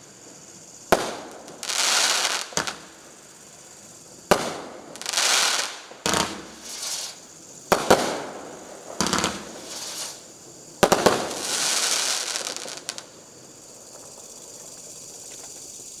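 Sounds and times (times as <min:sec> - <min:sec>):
crackling hiss: 0:00.0 - 0:16.0
fireworks bangs: 0:00.9 - 0:03.0, 0:04.2 - 0:13.1.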